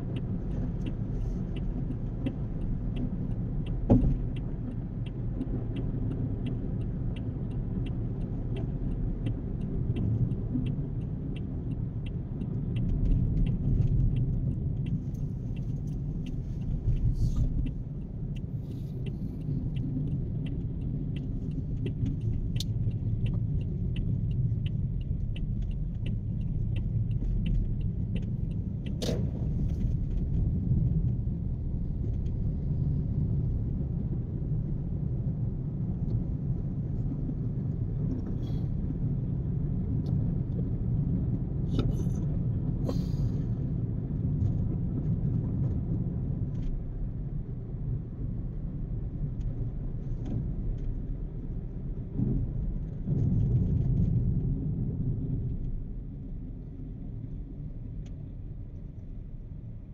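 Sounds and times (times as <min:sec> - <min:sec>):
car road and engine rumble: 0:00.0 - 0:59.9
faint regular ticking: 0:00.1 - 0:29.0.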